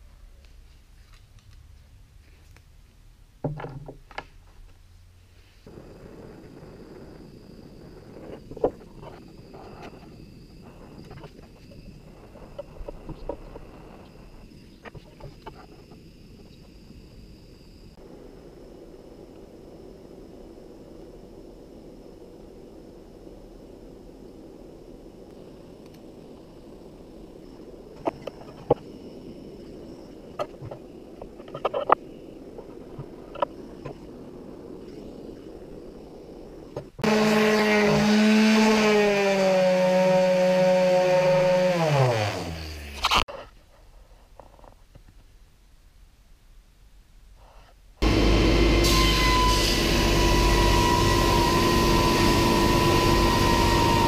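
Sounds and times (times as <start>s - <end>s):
low rushing noise: 4.9s - 37.1s
gas torch hissing: 48.0s - 54.0s.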